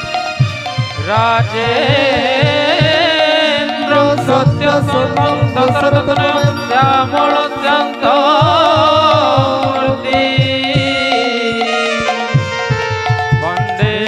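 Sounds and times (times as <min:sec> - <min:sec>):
drum strokes: 0:00.0 - 0:14.0
held instrumental tones: 0:02.0 - 0:14.0
person singing long wavering notes: 0:02.6 - 0:12.3.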